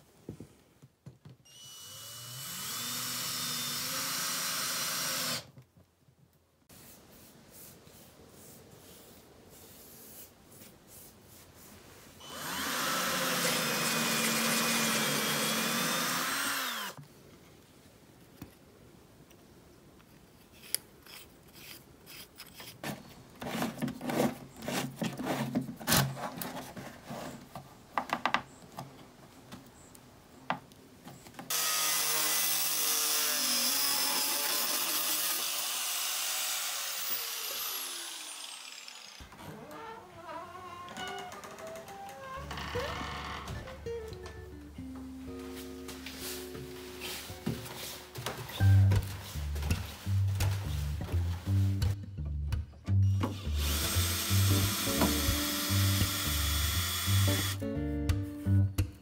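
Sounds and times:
cordless drill running: 1.5 - 5.5, 12.2 - 17.0, 31.5 - 39.3, 53.3 - 57.6
drill boring through plastic: 1.5 - 5.5, 12.2 - 17.0, 31.5 - 39.3, 53.3 - 57.6.

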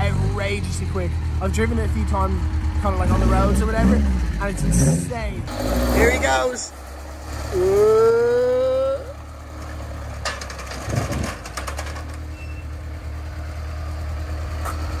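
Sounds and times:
car engine idling: 0.0 - 15.0
wheels clanking over metal ramps: 9.1 - 13.2.

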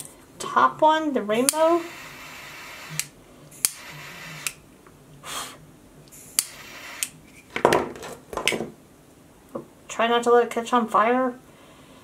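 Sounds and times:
flame hissing: 6.1 - 7.2
torch lighter clicks: 6.1 - 7.2.

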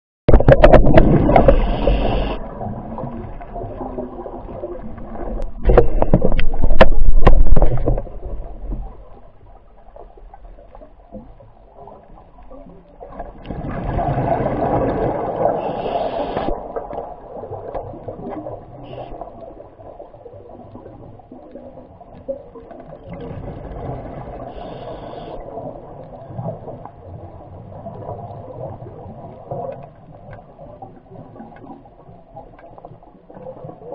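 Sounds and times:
muffled underwater rushing and gurgling: 0.3 - 33.9.

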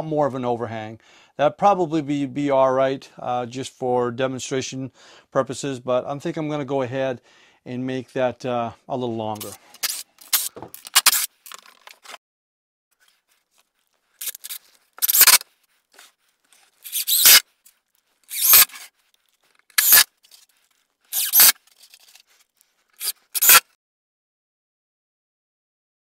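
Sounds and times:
impact driver driving screws: 9.4 - 12.2, 14.2 - 15.4, 16.8 - 17.4, 18.3 - 18.9, 19.7 - 20.1, 21.1 - 22.2, 23.0 - 23.6
knocks of handling wood: 10.4 - 10.9.

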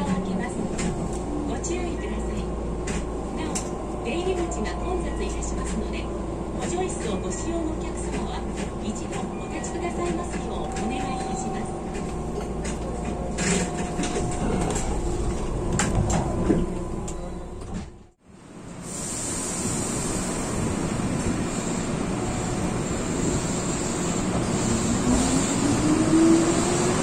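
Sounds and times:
train wheel clicks: 6.6 - 17.2.

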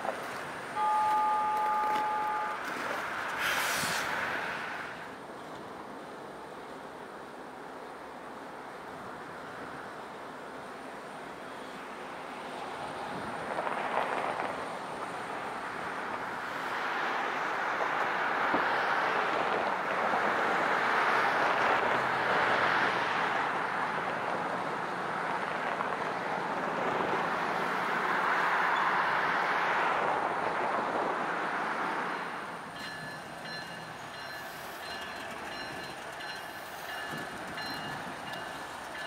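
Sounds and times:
diesel locomotive running: 32.0 - 39.0.

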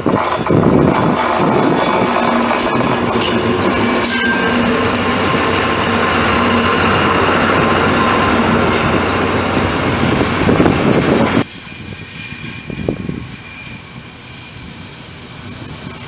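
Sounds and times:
high thin wheel squeal: 0.0 - 8.8, 11.4 - 16.0
train wheels rumbling on rails: 0.0 - 16.0.

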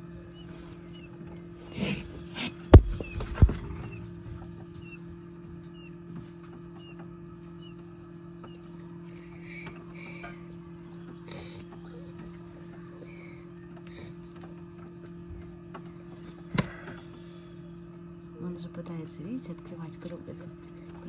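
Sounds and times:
quail chicks peeping: 0.0 - 21.0
steady low hum: 0.0 - 21.0
sharp knocks: 2.4 - 4.7.

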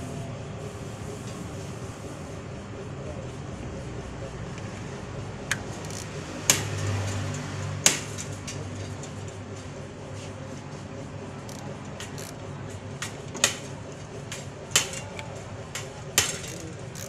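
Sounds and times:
steady background hum: 0.0 - 17.0
metal tool clicking on engine: 5.5 - 9.4, 11.4 - 13.7, 14.3 - 17.0.

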